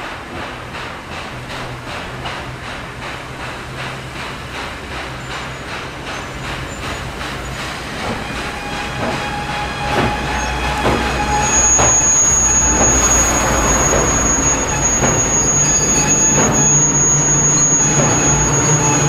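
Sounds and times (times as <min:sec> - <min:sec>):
steam locomotive chuffing: 0:00.0 - 0:19.0
high wheel squeal: 0:05.1 - 0:19.0.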